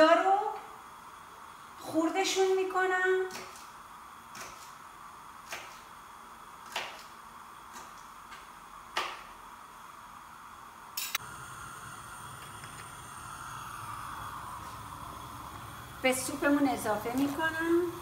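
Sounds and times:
steady low hum: 0.0 - 18.0
knife chopping on cutting board: 6.6 - 7.1.

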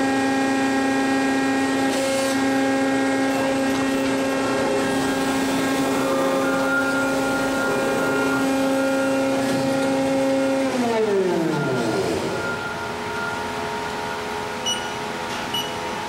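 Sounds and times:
electric motor whining: 1.9 - 12.6.

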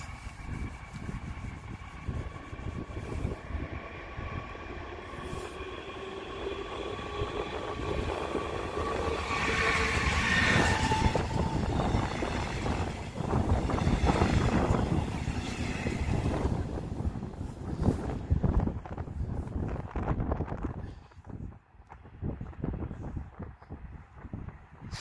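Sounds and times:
electric locomotive whine: 0.0 - 19.0
train wheels on rails: 0.0 - 20.7.

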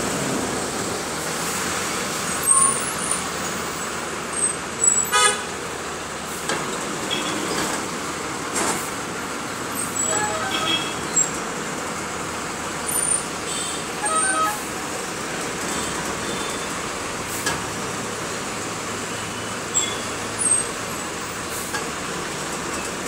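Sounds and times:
bus road noise: 0.0 - 23.0
vehicle horn honking: 5.1 - 5.4, 10.0 - 11.1, 13.5 - 15.0.

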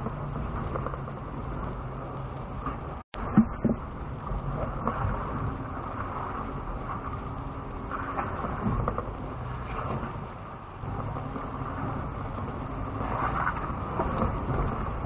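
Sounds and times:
engine running low: 0.0 - 15.0.

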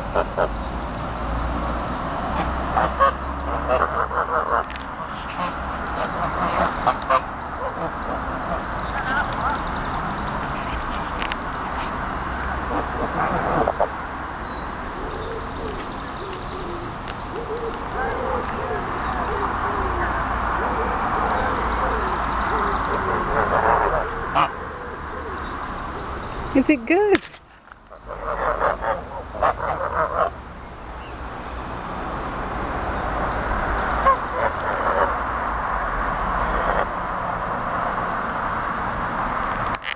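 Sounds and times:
geese calling softly: 2.2 - 11.2, 14.9 - 25.4, 27.7 - 30.4.

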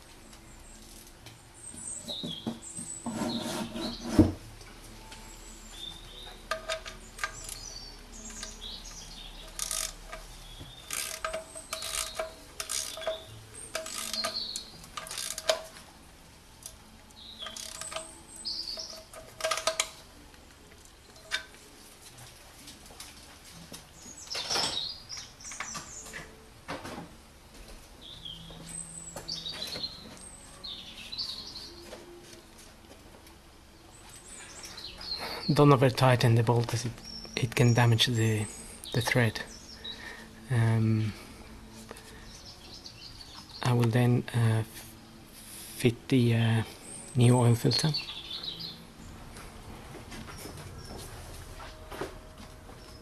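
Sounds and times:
birds chirping: 1.6 - 4.3, 5.2 - 15.6, 16.8 - 20.0, 28.0 - 32.2, 33.8 - 44.7, 46.1 - 49.4
ratchet clicking: 9.5 - 15.8, 17.4 - 18.2, 18.8 - 20.0.

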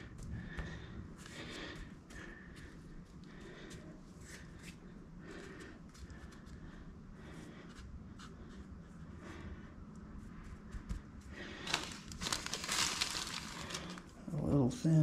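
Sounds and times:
hands rustling in soil: 11.5 - 14.0.

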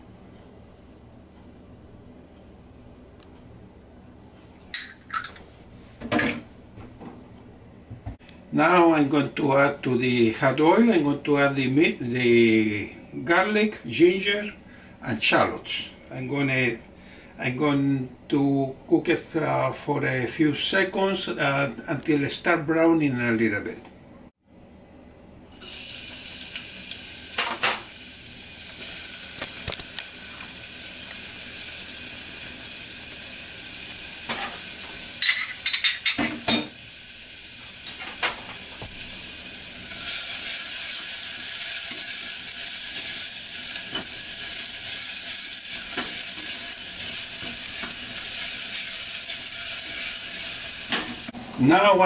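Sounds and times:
garlic sizzling in hot oil: 25.6 - 51.4.

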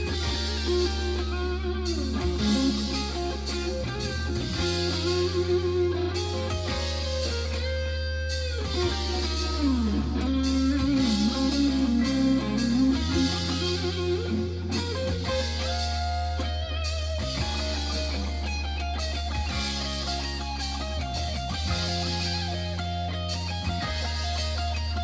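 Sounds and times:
bass guitar: 0.0 - 25.0
electric lead guitar soloing: 0.0 - 25.0
rock drums: 0.0 - 25.0.

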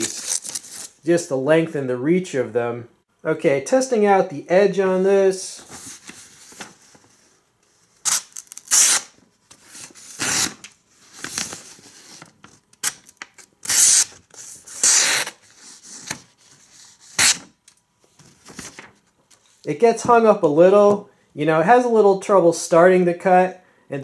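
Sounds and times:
knife slicing paper: 16.9 - 17.5.

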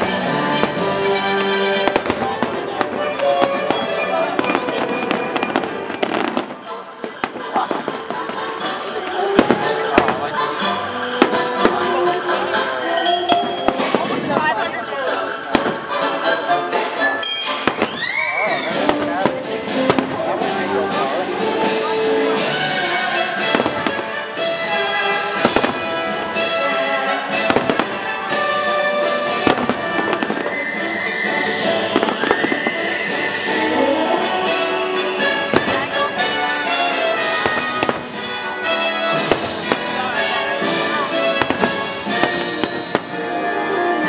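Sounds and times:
fireworks bursting with sharp bangs: 0.0 - 16.2, 16.8 - 43.6
loud show music: 0.0 - 44.0.

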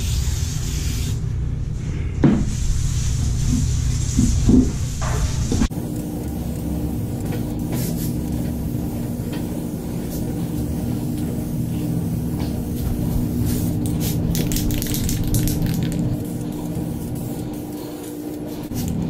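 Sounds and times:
spray paint hissing: 0.0 - 1.2, 5.7 - 19.0
machine hum: 2.8 - 19.0.

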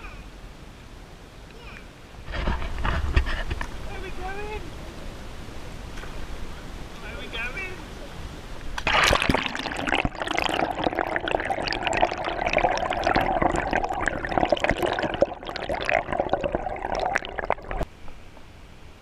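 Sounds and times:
water gurgling underwater: 8.8 - 17.8.

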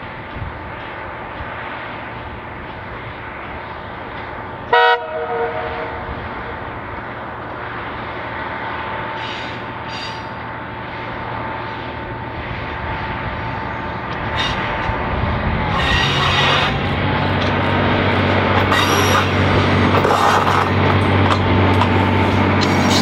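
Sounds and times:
railcar horn blast: 4.7 - 6.2, 15.5 - 17.0
diesel engine running: 10.7 - 23.0.

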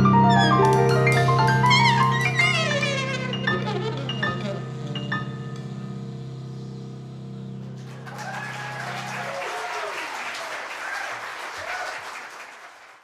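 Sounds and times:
audience applauding and cheering: 7.8 - 13.0.

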